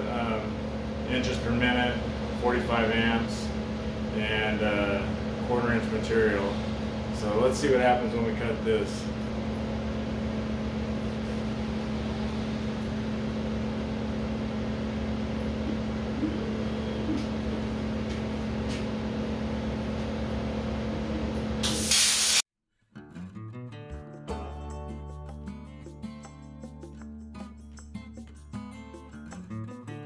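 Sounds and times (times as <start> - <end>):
machine hum with held tones: 0.0 - 21.8
plasma torch air hiss: 21.6 - 22.4
guitar music: 22.9 - 30.0.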